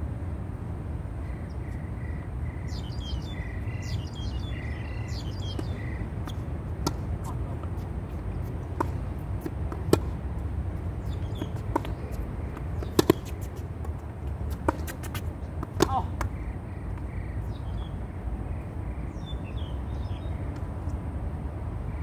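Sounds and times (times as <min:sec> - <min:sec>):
steady low rumble: 0:00.0 - 0:22.0
tennis ball hits: 0:05.4 - 0:10.4, 0:11.0 - 0:16.4
ball bouncing on hard court: 0:05.5 - 0:10.2, 0:11.0 - 0:16.4.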